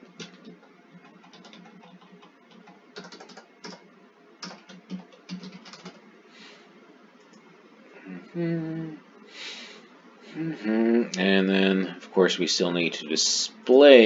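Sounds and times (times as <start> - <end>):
computer keyboard typing: 0.0 - 6.0.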